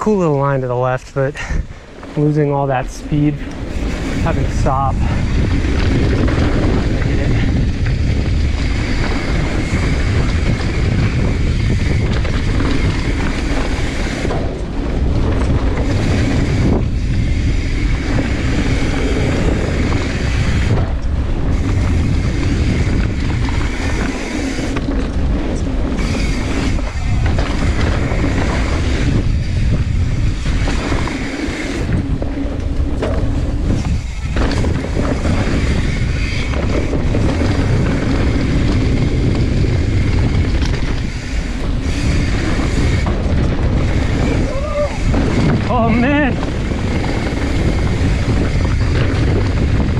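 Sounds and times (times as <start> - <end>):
mountain bike tyre roar and rattle: 0.0 - 49.9
wind noise on microphone: 0.0 - 49.9
bike knocking over bumps: 30.2 - 44.2.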